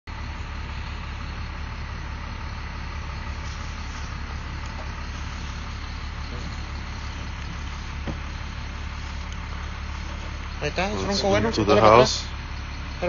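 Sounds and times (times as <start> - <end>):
constant hiss: 2.2 - 12.4.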